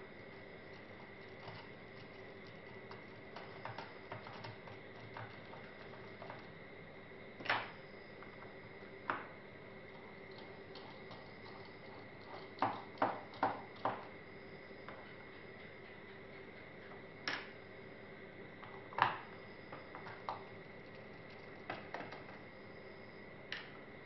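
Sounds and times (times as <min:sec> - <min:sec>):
faint steady tone: 0:00.0 - 0:24.0
small tools ticking and tapping: 0:00.2 - 0:06.5, 0:10.3 - 0:14.1, 0:14.9 - 0:17.4.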